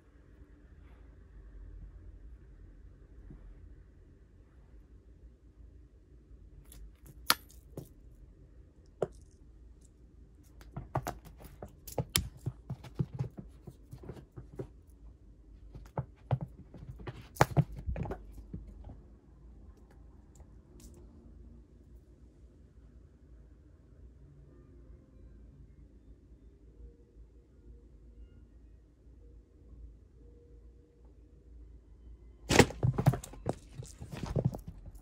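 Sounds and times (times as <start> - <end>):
cat paws scuffling: 10.6 - 14.8, 15.6 - 19.0, 32.5 - 35.0.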